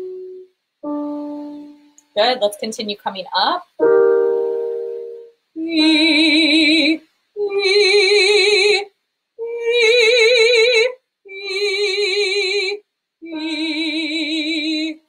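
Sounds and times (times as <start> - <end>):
woman singing sustained notes: 0.0 - 0.5, 5.6 - 8.8, 11.3 - 15.0.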